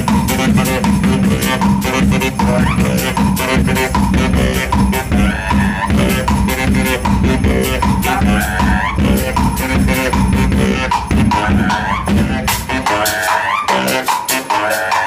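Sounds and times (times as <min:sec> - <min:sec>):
saxophone buzzy sounds: 0:00.0 - 0:15.0
steady drum beat: 0:00.0 - 0:15.0.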